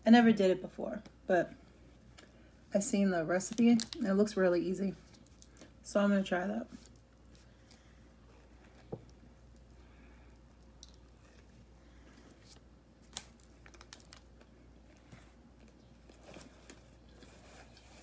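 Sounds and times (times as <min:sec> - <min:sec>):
person chewing a sandwich: 0:07.0 - 0:17.3.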